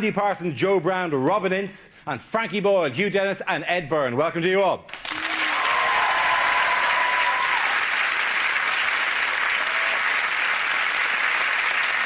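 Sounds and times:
audience applauding: 0:04.9 - 0:12.0.

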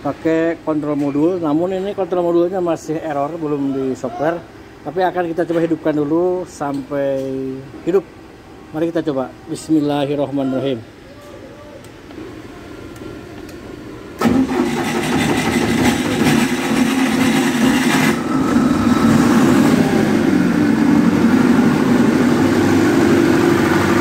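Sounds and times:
diesel generator running: 0:11.9 - 0:24.0
diesel engine cranking: 0:14.2 - 0:24.0.

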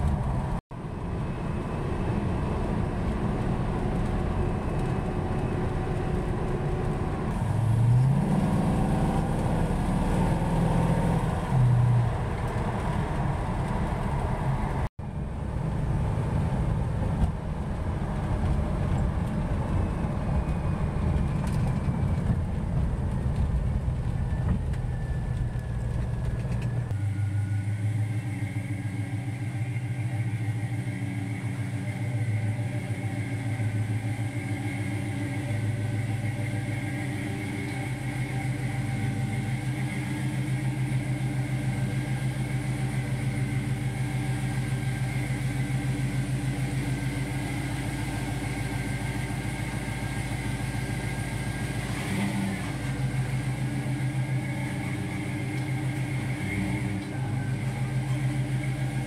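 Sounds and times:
car engine idling with loud exhaust: 0:00.0 - 0:59.0.

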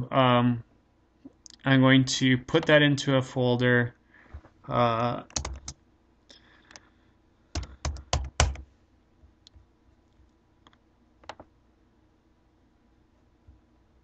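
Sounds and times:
computer keyboard keystrokes: 0:05.3 - 0:05.8, 0:07.6 - 0:08.6, 0:11.2 - 0:11.5.

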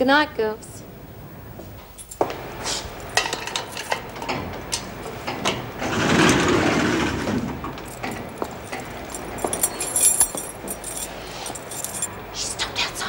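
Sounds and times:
footsteps: 0:01.6 - 0:05.3, 0:07.3 - 0:12.2
scraping rattling noise: 0:03.1 - 0:12.1.

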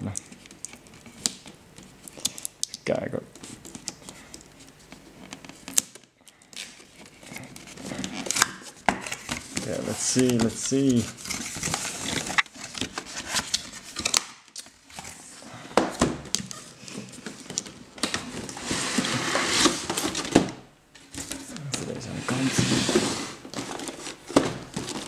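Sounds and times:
plastic packaging crinkling: 0:05.3 - 0:15.4, 0:23.4 - 0:25.0.

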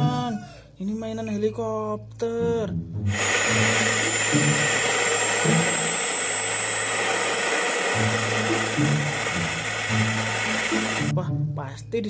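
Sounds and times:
music: 0:00.0 - 0:05.9, 0:07.8 - 0:12.0
helicopter turbine whine: 0:03.1 - 0:11.1.

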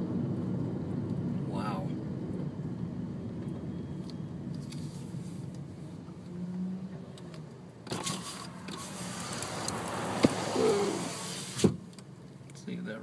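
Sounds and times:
car driving rumble: 0:00.0 - 0:13.0
broad hiss: 0:08.7 - 0:11.8.

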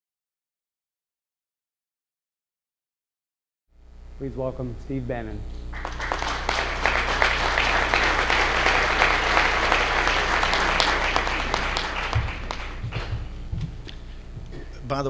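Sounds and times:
audience applauding: 0:05.7 - 0:13.4.

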